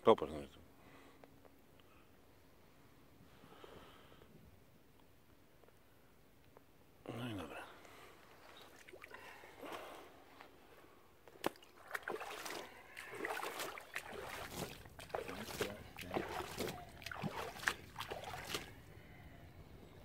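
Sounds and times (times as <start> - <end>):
water splashing by hand: 11.4 - 18.8.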